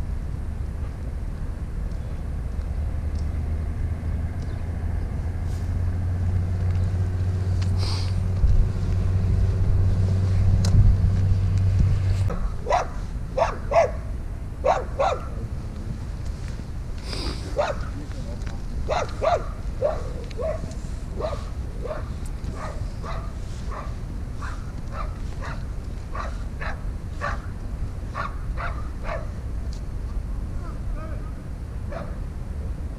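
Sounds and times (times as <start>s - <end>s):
steady low hum: 0.0s - 32.9s
dog barking: 12.3s - 15.4s, 17.5s - 18.0s, 18.9s - 27.5s, 28.1s - 29.4s, 31.9s - 32.2s.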